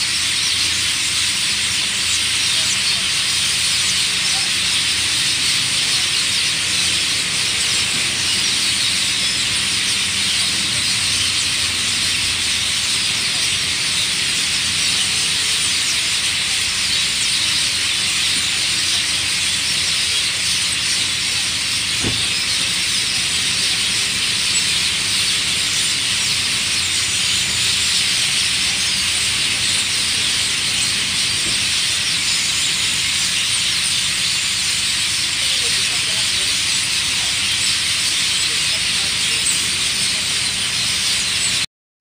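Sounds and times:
flock of birds chirping: 0:00.0 - 0:41.7
brief low thump: 0:22.0 - 0:22.3.

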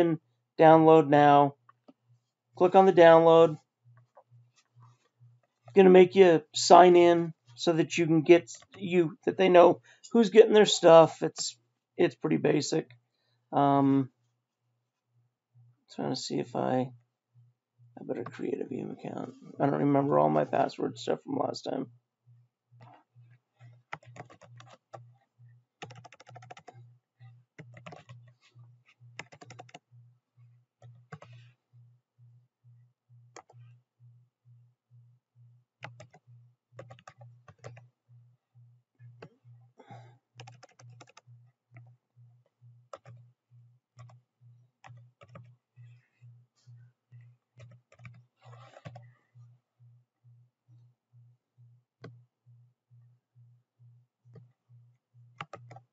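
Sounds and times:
typing on computer keyboard: 0:23.8 - 0:25.0, 0:25.8 - 0:26.8, 0:27.6 - 0:28.3, 0:29.2 - 0:29.8, 0:30.8 - 0:31.4, 0:33.3 - 0:33.6, 0:35.8 - 0:36.2, 0:36.8 - 0:37.8, 0:39.2 - 0:41.9, 0:42.9 - 0:43.2, 0:44.0 - 0:44.2, 0:44.8 - 0:45.5, 0:47.6 - 0:49.0, 0:55.4 - 0:55.9.

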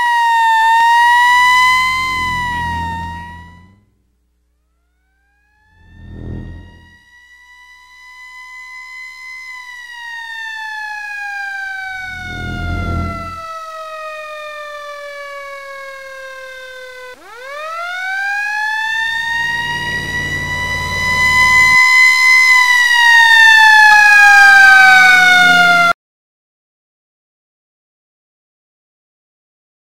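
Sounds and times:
fire engine siren wailing: 0:00.0 - 0:03.8, 0:05.3 - 0:26.0
engine and road rumble: 0:01.2 - 0:04.0, 0:05.7 - 0:07.0, 0:11.7 - 0:13.6, 0:18.5 - 0:22.0.

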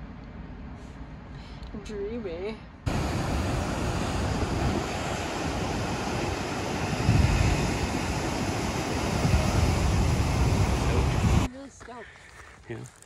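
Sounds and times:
wind buffeting microphone: 0:02.9 - 0:11.5.

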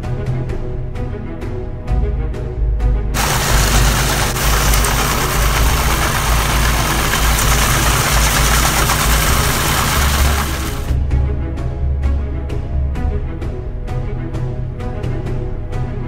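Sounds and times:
power trowel engine running: 0:03.2 - 0:11.0.

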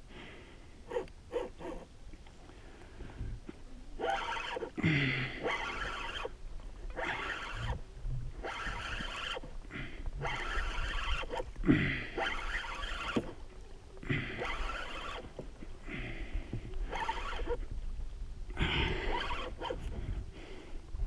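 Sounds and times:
fishing reel cranking: 0:04.0 - 0:04.8, 0:05.4 - 0:07.8, 0:08.4 - 0:09.5, 0:10.2 - 0:11.5, 0:12.1 - 0:13.4, 0:14.2 - 0:15.4, 0:16.8 - 0:17.6, 0:18.8 - 0:19.9.

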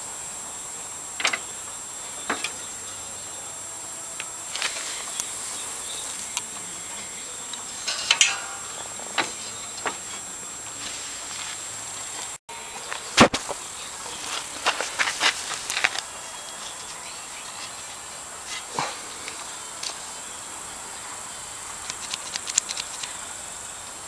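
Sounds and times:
high-pitched hiss with whine: 0:00.0 - 0:24.0
sharp clicks and knocks: 0:21.8 - 0:23.2.

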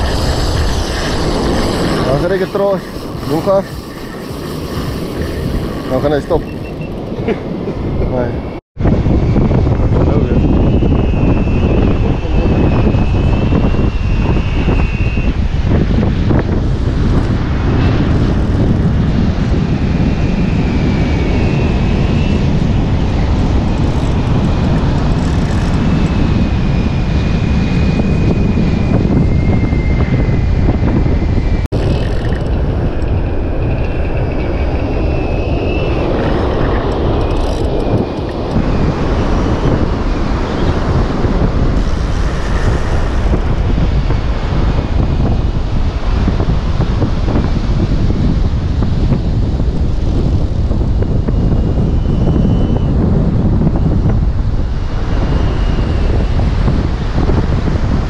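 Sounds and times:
wind buffeting microphone: 0:00.0 - 0:58.0
faint wavering high whine: 0:25.2 - 0:44.3, 0:50.0 - 0:57.4.

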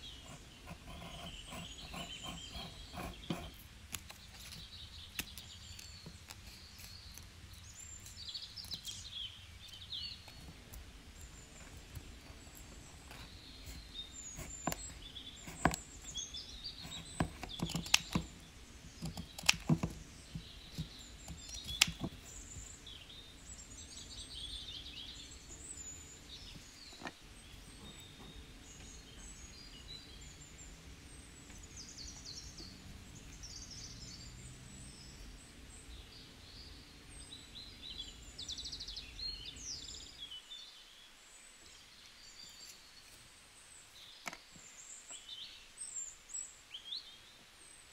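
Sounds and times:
birds chirping and trilling: 0:00.0 - 0:47.9
low room hum: 0:00.0 - 0:47.9
cardstock clicks and taps: 0:14.4 - 0:15.8, 0:16.8 - 0:22.3.

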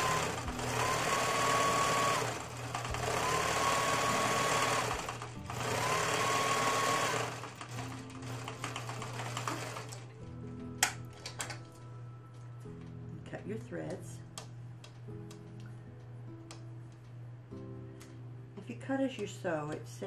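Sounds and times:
sewing machine stitching: 0:00.0 - 0:10.1.

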